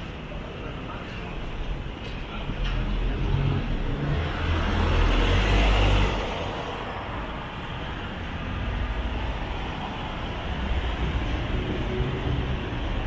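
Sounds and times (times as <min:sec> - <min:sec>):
background traffic: 0:00.0 - 0:13.0.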